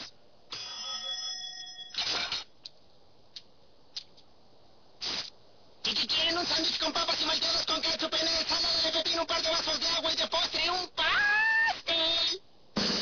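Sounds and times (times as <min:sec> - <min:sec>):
bell-like ring: 0:00.5 - 0:02.1.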